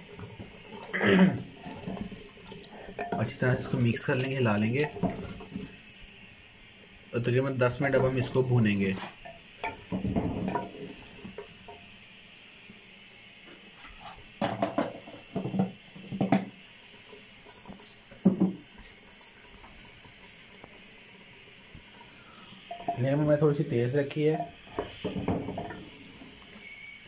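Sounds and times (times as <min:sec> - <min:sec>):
faint steady hiss: 0:00.0 - 0:27.0
wooden spoon scraping a pot: 0:00.2 - 0:05.8.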